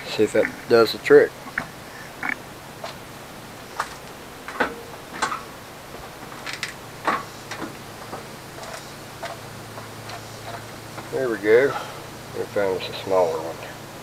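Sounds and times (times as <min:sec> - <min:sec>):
footsteps: 0:03.8 - 0:11.2.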